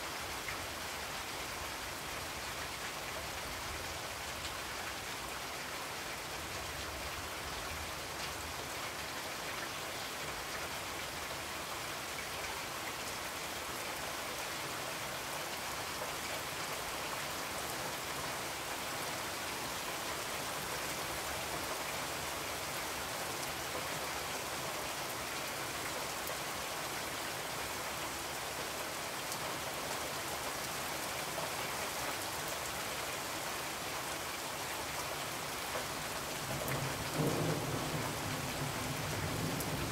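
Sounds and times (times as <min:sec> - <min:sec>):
steady rain hiss: 0:00.0 - 0:39.9.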